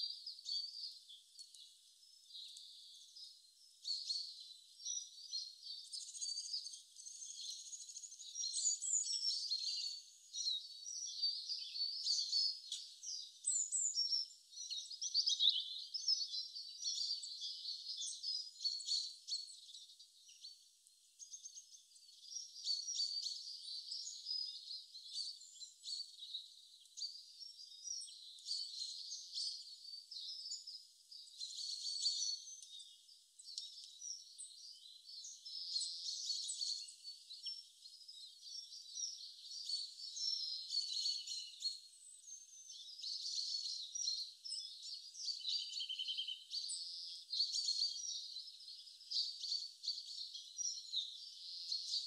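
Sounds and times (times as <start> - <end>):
small birds chirping: 0.0 - 52.0
bird trill: 21.2 - 52.0.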